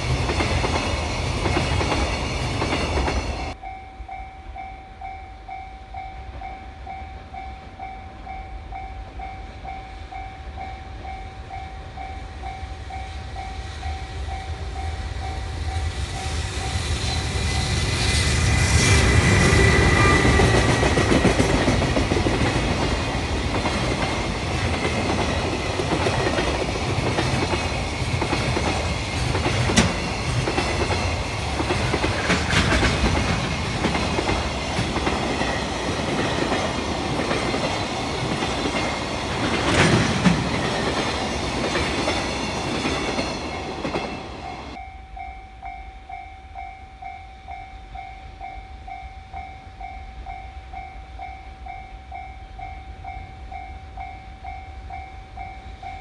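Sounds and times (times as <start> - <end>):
level crossing warning bell: 0.0 - 17.9, 19.6 - 56.0
freight train rumbling past: 0.0 - 46.2
wheels clacking over rail joints: 19.0 - 44.8.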